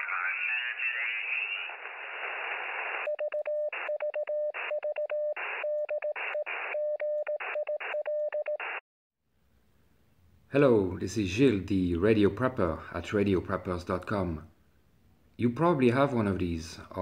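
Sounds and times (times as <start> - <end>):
radio static hiss: 0.0 - 3.1
morse code beeping tone: 3.1 - 8.7.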